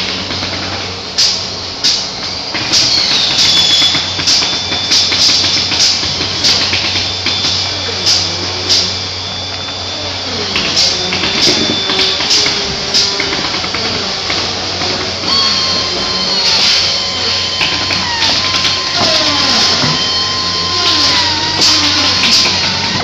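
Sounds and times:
high whine: 0:00.0 - 0:23.0
machinery hum: 0:00.0 - 0:23.0.

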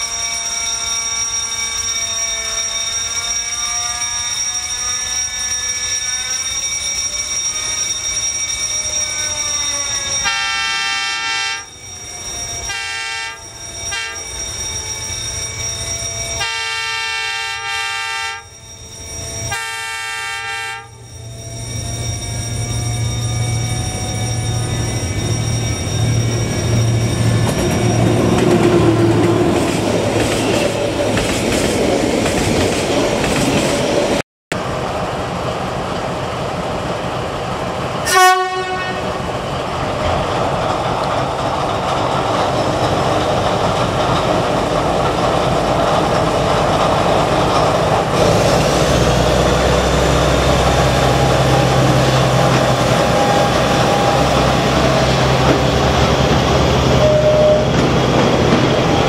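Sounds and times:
train horn blast: 0:10.2 - 0:11.7, 0:12.7 - 0:14.2, 0:16.4 - 0:18.5, 0:19.5 - 0:21.0, 0:38.0 - 0:39.2, 0:56.9 - 0:57.8
wagons clattering over rail joints: 0:39.8 - 0:59.0.

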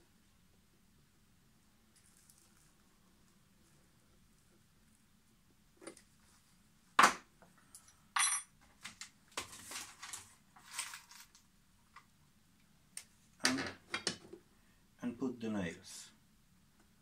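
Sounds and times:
metal tools clattering: 0:08.2 - 0:08.5.

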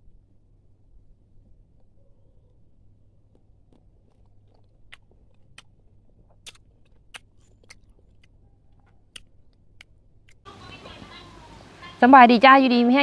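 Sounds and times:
sharp clicks and ticks: 0:03.3 - 0:10.4.

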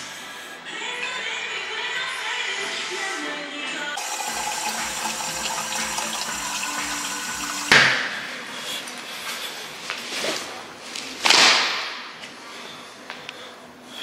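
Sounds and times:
water pouring into plastic cup: 0:04.0 - 0:07.8.

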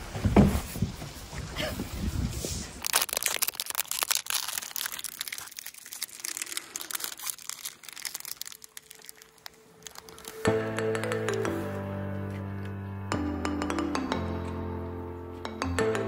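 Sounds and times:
plastic wrapper crinkling: 0:02.8 - 0:11.4.

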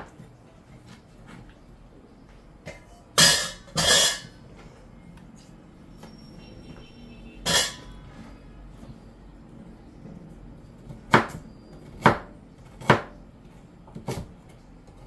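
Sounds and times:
knife cutting potato on board: 0:10.8 - 0:13.2.

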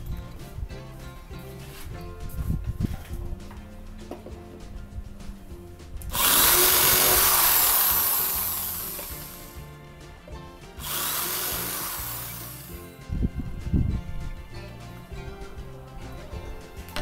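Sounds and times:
electric drill boring into wood: 0:06.1 - 0:09.6, 0:10.8 - 0:12.8.

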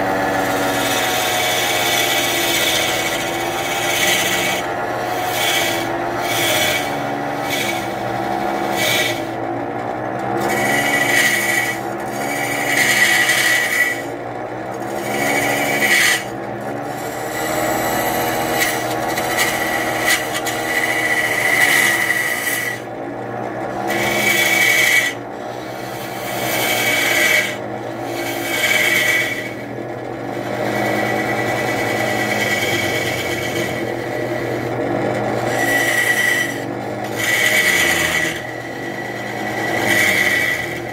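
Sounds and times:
chisel scraping wood: 0:00.0 - 0:40.9
wood lathe humming: 0:00.0 - 0:40.9.

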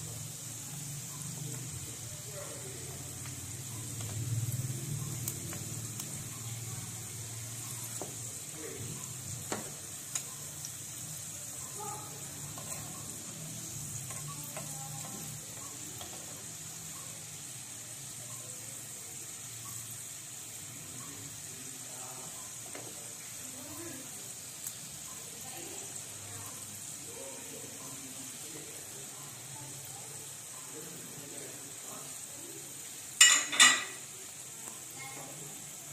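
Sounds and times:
chicken sizzling in hot oil: 0:00.0 - 0:35.9
metal tongs clicking on pan: 0:11.5 - 0:16.4.

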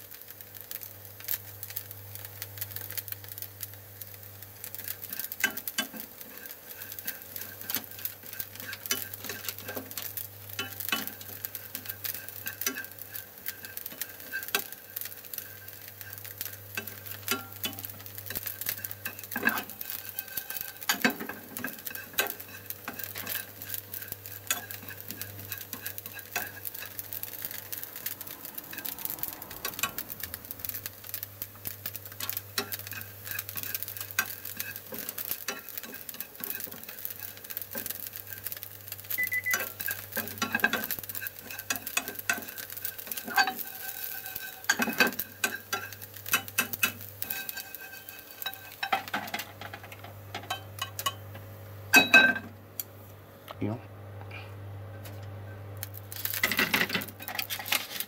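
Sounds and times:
fish sizzling in a frying pan: 0:00.0 - 0:52.8, 0:55.4 - 0:58.0
chopsticks scraping a pan: 0:04.7 - 0:51.2, 0:56.1 - 0:58.0.

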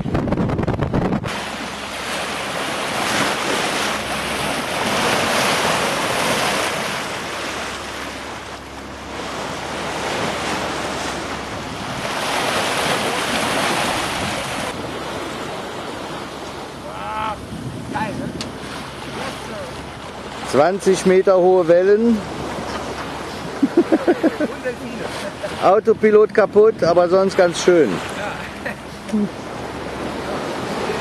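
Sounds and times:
wind buffeting microphone: 0:00.0 - 0:20.6
water splashing along boat hull: 0:00.0 - 0:31.0.

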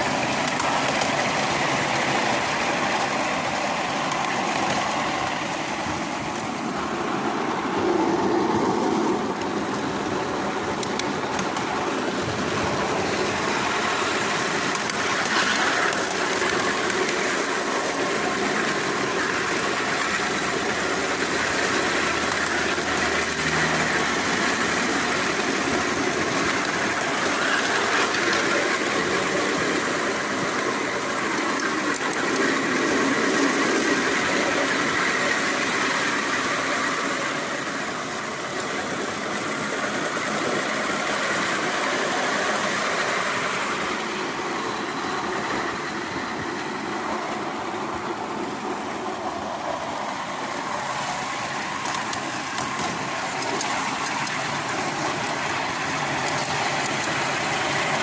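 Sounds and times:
model tram wheels rolling on track: 0:00.0 - 0:58.0.

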